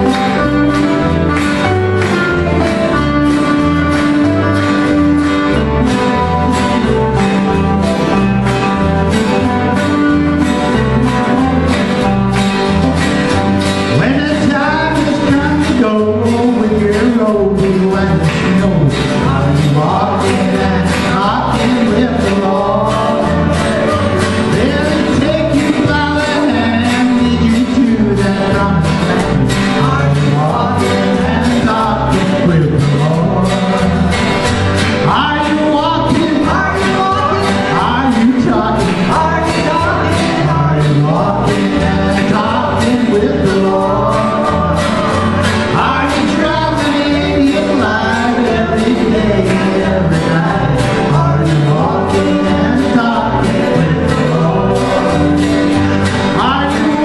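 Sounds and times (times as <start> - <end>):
band keeping a steady beat: 0.0 - 57.0
strummed acoustic guitars: 0.0 - 57.0
man and woman singing: 13.9 - 34.4, 35.0 - 57.0.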